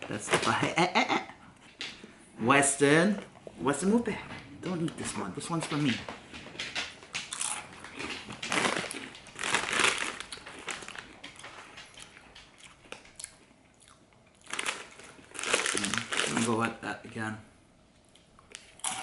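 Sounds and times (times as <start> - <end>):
chip bag crinkling: 6.9 - 13.4, 14.3 - 16.9
crunching chewing on chip: 7.2 - 16.5.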